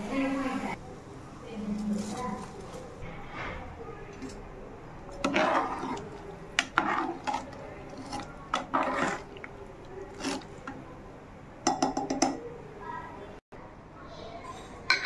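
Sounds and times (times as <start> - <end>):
water sloshing: 5.0 - 10.9
spoon scraping and clinking pot: 5.1 - 10.8.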